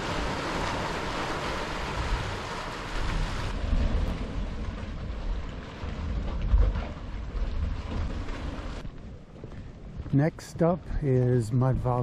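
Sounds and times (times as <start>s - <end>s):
hot spring water churning: 0.0s - 8.8s.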